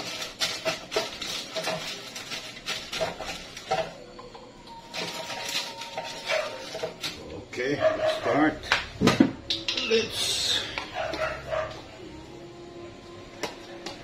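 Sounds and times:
metal kitchenware clinking and scraping: 0:00.0 - 0:04.0, 0:04.8 - 0:11.8.

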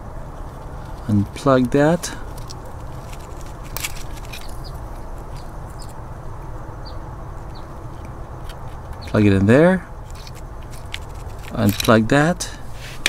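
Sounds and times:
outdoor background noise: 0:00.0 - 0:13.0
bird chirps: 0:06.8 - 0:07.8.

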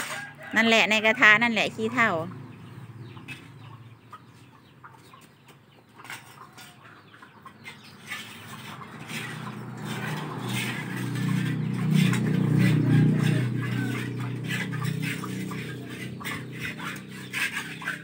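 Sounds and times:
chickens clucking: 0:00.0 - 0:18.0
light taps and scrapes: 0:03.2 - 0:03.6, 0:05.0 - 0:18.0.

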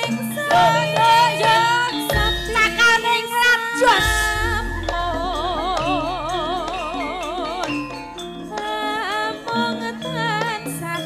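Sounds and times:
gamelan accompaniment: 0:00.0 - 0:11.0
woman singing through a microphone: 0:00.0 - 0:11.0.

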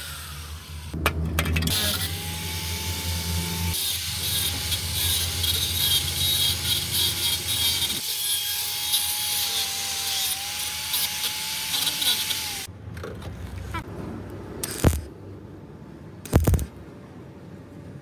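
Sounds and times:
angle grinder cutting sheet steel: 0:01.7 - 0:12.7.

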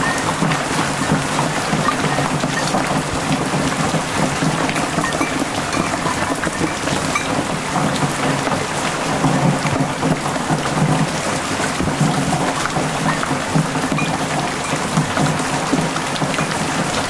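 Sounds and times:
heavy rain on leaves and cans: 0:00.0 - 0:17.0
runoff water rushing and splashing: 0:00.0 - 0:17.0.

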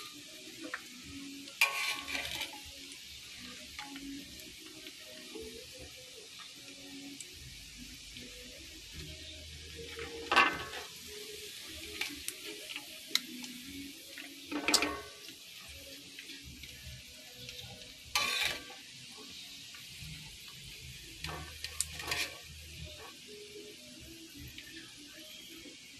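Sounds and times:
meat sizzling in hot oil: 0:00.0 - 0:25.9
metal ladle scraping a pan: 0:01.4 - 0:03.9, 0:09.9 - 0:11.0, 0:14.4 - 0:15.4, 0:18.1 - 0:19.5, 0:21.2 - 0:23.2.

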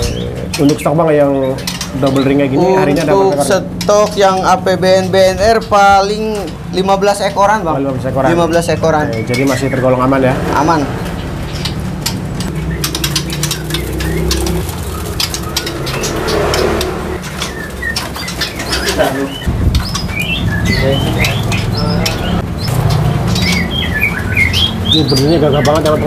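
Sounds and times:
small birds chirping: 0:00.0 - 0:26.0
dove cooing: 0:10.9 - 0:26.0
bird wings fluttering: 0:12.8 - 0:18.9.

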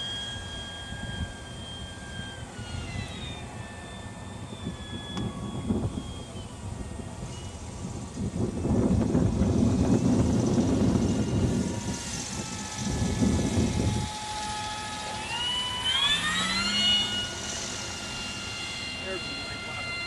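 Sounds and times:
electric motor and propeller whining: 0:00.0 - 0:20.0.

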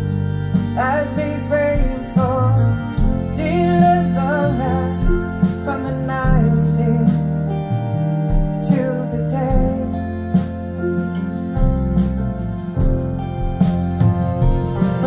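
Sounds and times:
woman singing with instruments: 0:00.5 - 0:11.6.

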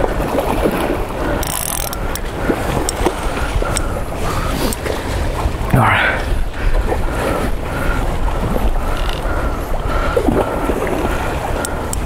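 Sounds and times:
wind noise on microphone: 0:00.0 - 0:12.0
fishing reel squeaking: 0:01.4 - 0:02.1, 0:08.9 - 0:09.3.

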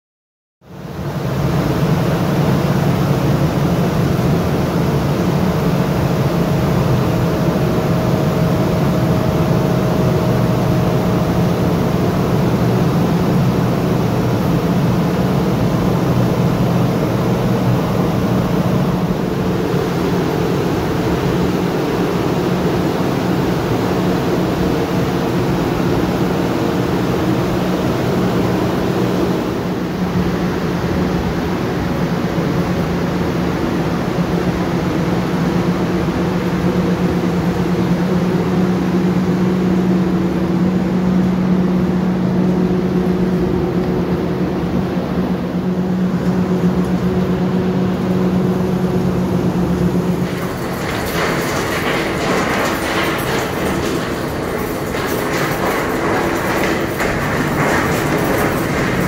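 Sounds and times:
fans droning: 0:00.7 - 0:59.0.

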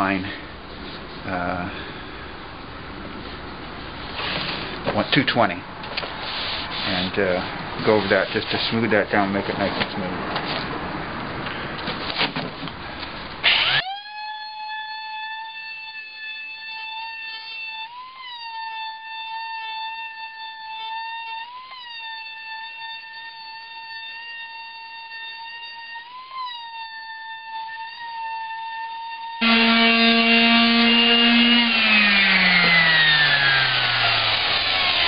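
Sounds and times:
electric palm sander humming: 0:29.4 - 0:35.0
rough noise: 0:29.4 - 0:35.0.

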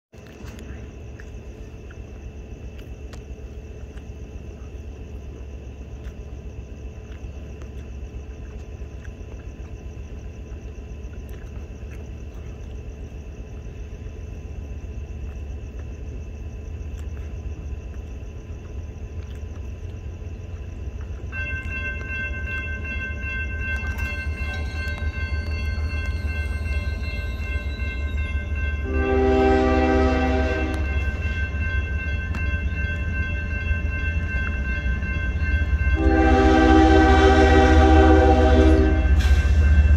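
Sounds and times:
freight train rumble: 0:00.2 - 0:39.9
crossing warning bell: 0:19.8 - 0:39.9
locomotive air horn: 0:28.8 - 0:31.0, 0:36.0 - 0:39.7.

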